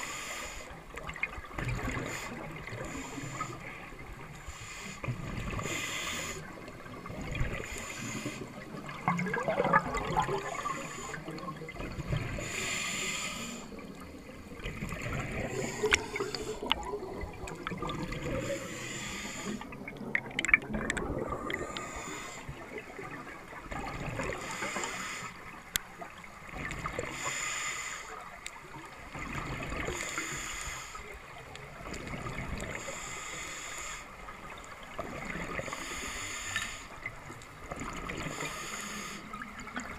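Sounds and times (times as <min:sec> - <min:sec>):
diver breathing through regulator: 0:00.0 - 0:00.8, 0:01.8 - 0:06.7, 0:07.5 - 0:14.1, 0:15.0 - 0:17.2, 0:18.0 - 0:19.8, 0:21.2 - 0:22.8, 0:24.3 - 0:25.5, 0:27.0 - 0:28.2, 0:29.8 - 0:31.1, 0:32.6 - 0:34.2, 0:35.5 - 0:37.1, 0:38.1 - 0:39.5
air bubbles gurgling: 0:08.6 - 0:12.5, 0:14.0 - 0:18.7, 0:19.6 - 0:24.6.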